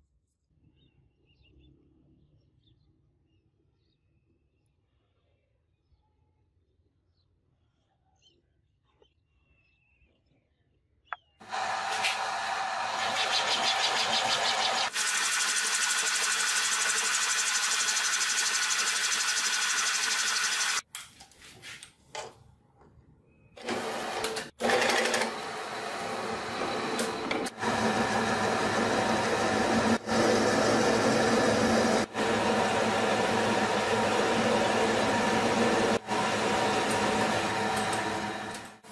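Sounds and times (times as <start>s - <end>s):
power tools running: 11.4s - 20.8s, 23.6s - 38.9s.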